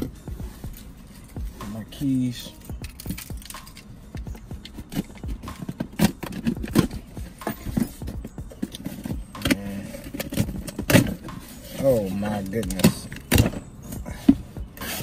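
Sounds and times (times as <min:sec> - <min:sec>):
keys jangling: 0:02.5 - 0:05.3.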